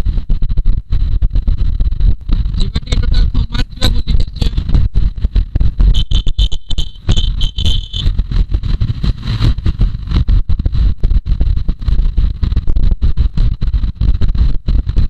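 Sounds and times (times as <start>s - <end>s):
wind buffeting microphone: 0.0s - 15.0s
high steady tone: 5.9s - 8.1s.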